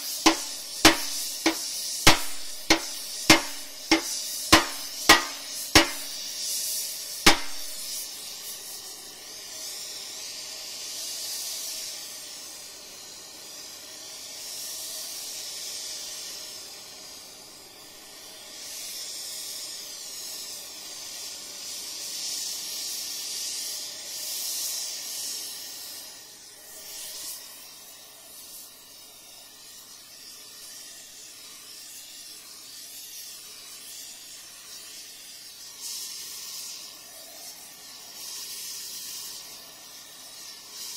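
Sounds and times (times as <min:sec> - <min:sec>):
hammer blow on steel: 0:00.0 - 0:06.3, 0:07.3 - 0:08.0
torch flame hissing: 0:00.0 - 0:40.9.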